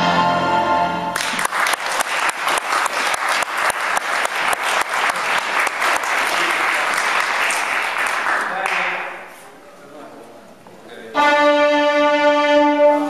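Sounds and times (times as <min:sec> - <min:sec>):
music: 0:00.0 - 0:01.3, 0:11.1 - 0:13.0
audience applauding: 0:01.1 - 0:09.3.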